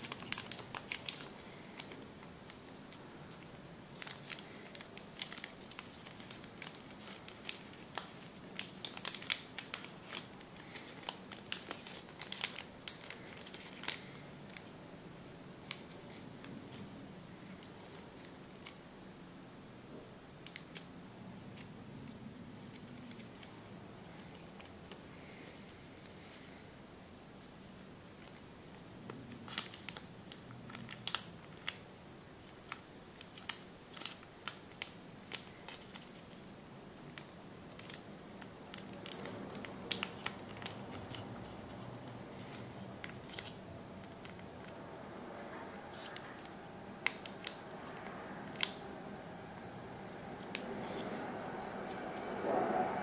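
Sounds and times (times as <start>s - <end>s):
paper crackling while folded: 0.0s - 14.8s, 26.2s - 48.9s
soft background noise: 0.0s - 53.0s.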